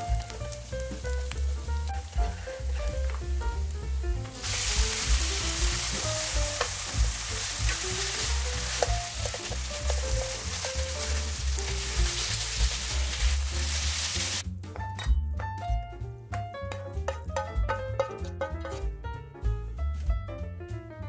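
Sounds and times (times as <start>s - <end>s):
noodles sizzling in frying pan: 0.0s - 14.4s
chopsticks ticking against pan: 6.2s - 11.2s.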